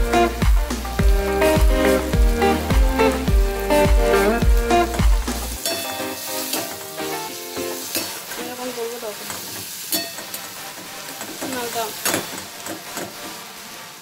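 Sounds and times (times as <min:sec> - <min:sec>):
background music with beat: 0:00.0 - 0:07.9
vegetables sizzling in oil: 0:00.0 - 0:14.0.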